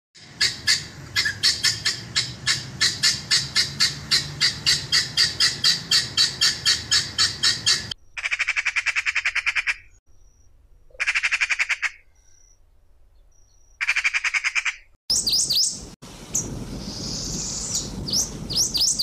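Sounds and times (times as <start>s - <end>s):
guinea fowl calling: 0.2s - 9.9s, 10.9s - 12.3s, 13.8s - 15.7s
magpie rattling chatter: 0.2s - 9.9s, 11.0s - 12.0s, 13.8s - 15.6s.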